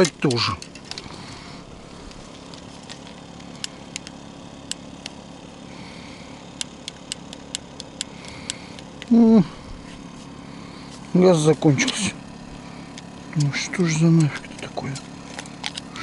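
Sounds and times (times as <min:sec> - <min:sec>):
low hum: 0:00.0 - 0:16.0
gas igniter clicking: 0:06.6 - 0:09.1.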